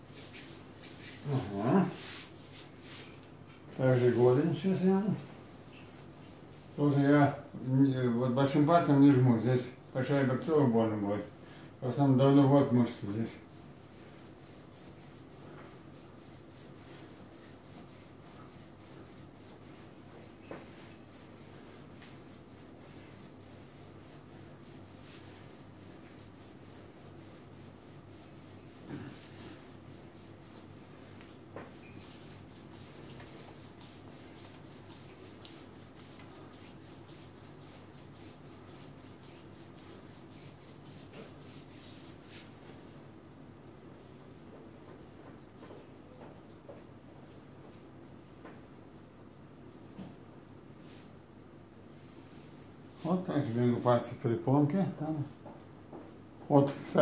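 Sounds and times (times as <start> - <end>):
hands rubbing oiled skin: 0.0 - 3.1, 13.0 - 42.5, 47.3 - 52.5.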